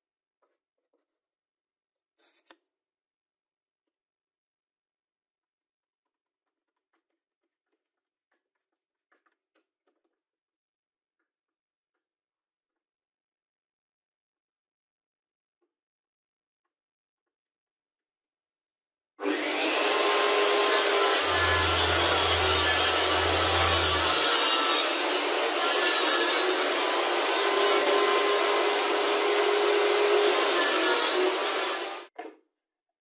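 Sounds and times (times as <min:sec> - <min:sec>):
table saw cutting board: 0:19.2 - 0:32.1.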